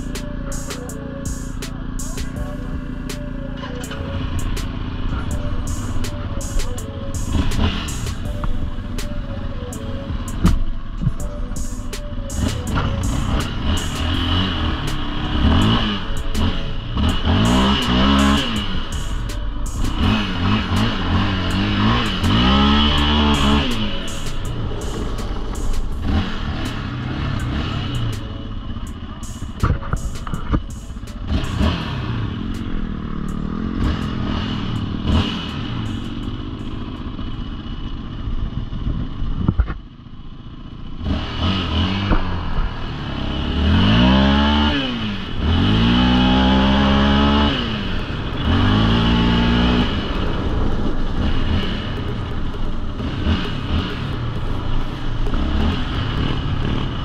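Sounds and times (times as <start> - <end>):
atv engines running: 0.0 - 57.0
quad accelerating through gears: 0.0 - 57.0.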